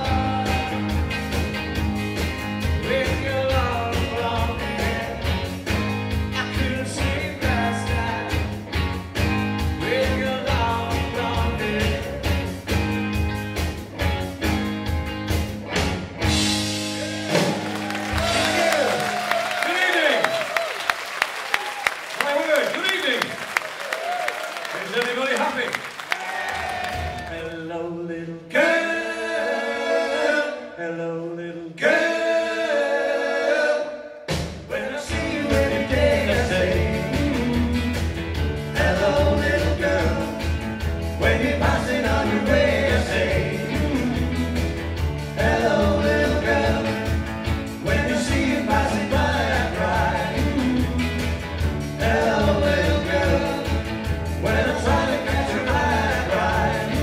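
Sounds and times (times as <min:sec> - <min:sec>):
rock band playing: 0:00.0 - 0:20.1, 0:26.6 - 0:27.3, 0:34.3 - 0:57.0
voices singing in harmony: 0:28.4 - 0:38.0, 0:38.7 - 0:40.6, 0:41.2 - 0:57.0.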